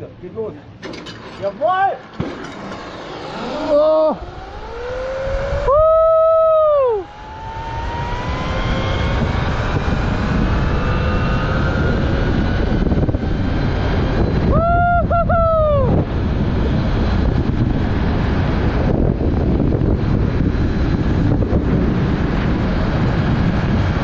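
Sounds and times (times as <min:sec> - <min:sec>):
zipline trolley whine on cable: 0:00.9 - 0:24.0
wind rush on microphone: 0:03.0 - 0:24.0
person whooping: 0:03.5 - 0:04.3, 0:05.6 - 0:07.1, 0:14.5 - 0:16.0.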